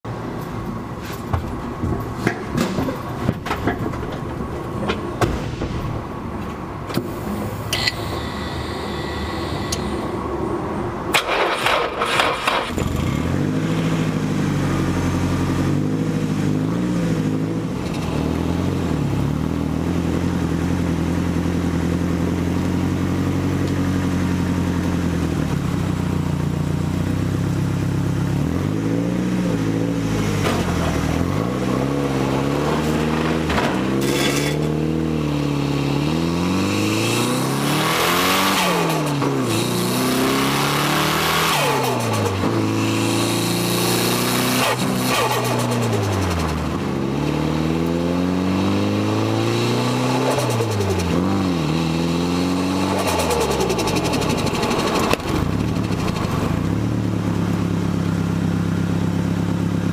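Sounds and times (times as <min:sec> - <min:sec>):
car engine revving through gears: 0:11.1 - 0:20.7, 0:28.5 - 0:56.8.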